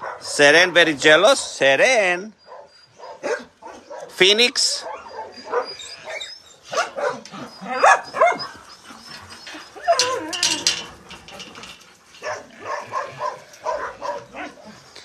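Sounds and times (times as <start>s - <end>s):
dogs barking and yipping: 0.0s - 0.4s, 1.1s - 15.0s
dog whining call: 4.9s - 11.4s.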